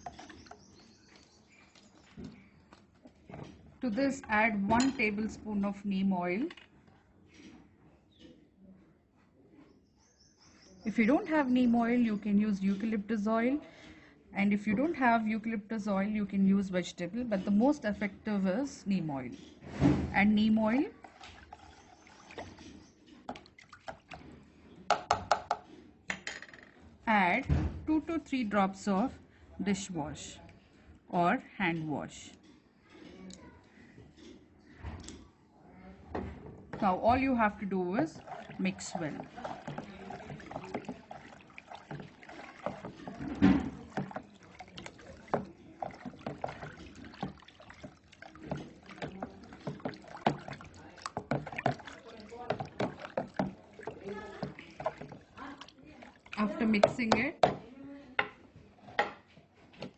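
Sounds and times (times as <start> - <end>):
water sloshing in a tub: 0.0 - 7.8, 10.4 - 24.9, 36.0 - 57.9.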